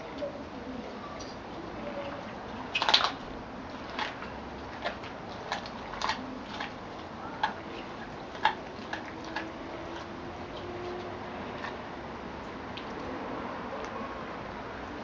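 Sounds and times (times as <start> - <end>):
dog chewing bone: 2.7 - 11.9.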